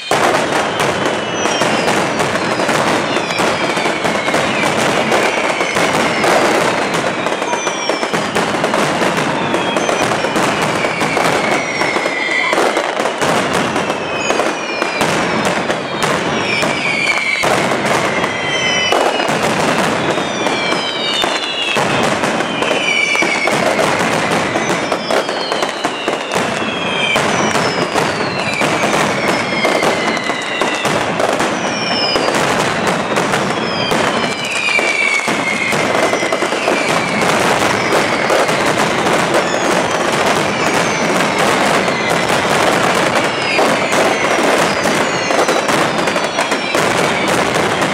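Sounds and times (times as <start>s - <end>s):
falling whistles: 0.0s - 8.4s, 9.2s - 47.9s
firecrackers cracking and banging: 0.0s - 47.9s.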